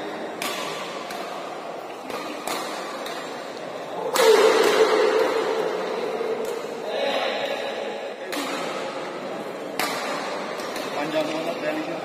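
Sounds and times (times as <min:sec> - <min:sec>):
shuttlecock hits with rackets: 0:00.2 - 0:05.5, 0:08.3 - 0:08.8, 0:09.7 - 0:11.4
loud shout and cheering: 0:03.9 - 0:07.8.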